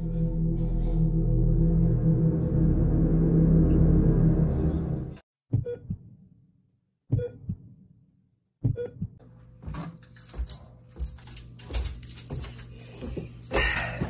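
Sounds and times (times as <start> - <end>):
low hum: 0.0 - 5.2
footsteps on wooden stairs: 9.6 - 14.0
light jingling: 10.0 - 14.0.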